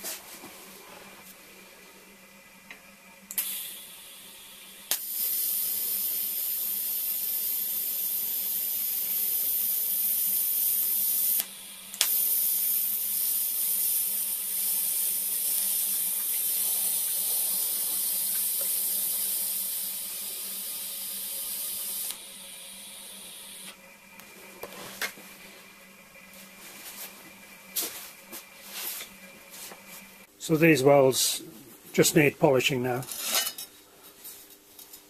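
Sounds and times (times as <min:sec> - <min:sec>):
welder sharp click: 0:03.3 - 0:03.7, 0:04.9 - 0:05.4, 0:11.3 - 0:12.3, 0:21.8 - 0:22.2
welding arc hissing: 0:03.3 - 0:23.8.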